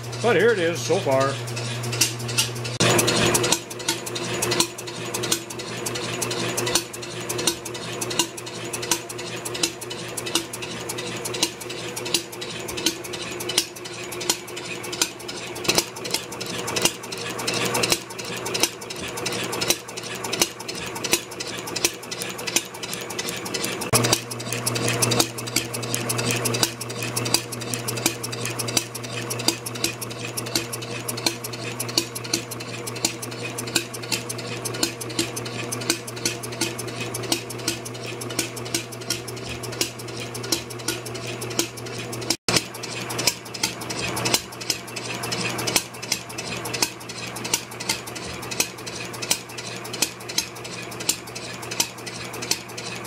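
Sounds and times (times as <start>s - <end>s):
constant motor hum: 0.0s - 53.0s
flywheel engine clattering: 0.0s - 53.0s
regular sharp tick: 20.4s - 42.4s.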